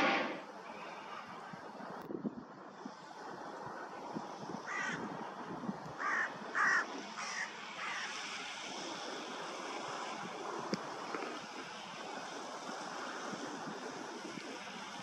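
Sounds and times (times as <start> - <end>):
steady hiss: 0.0 - 15.0
crow cawing: 4.7 - 5.0, 6.0 - 8.1.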